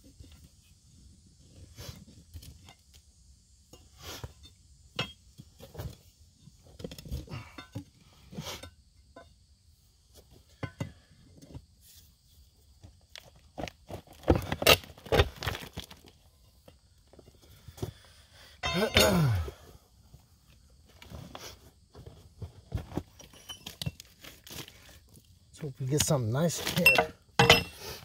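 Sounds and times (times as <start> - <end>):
loose rock falling: 13.2 - 17.2, 18.6 - 19.6.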